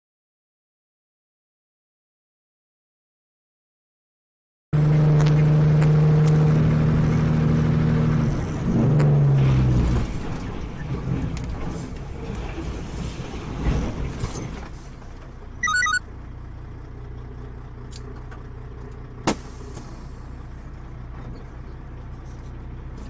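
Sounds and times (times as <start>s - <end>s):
truck road and engine rumble: 4.8s - 23.0s
electronic beeping alert: 15.6s - 16.0s.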